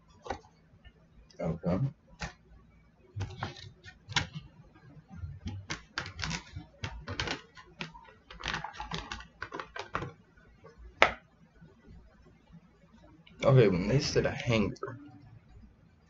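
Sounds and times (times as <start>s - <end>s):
plastic wrap rustling: 6.0s - 10.1s.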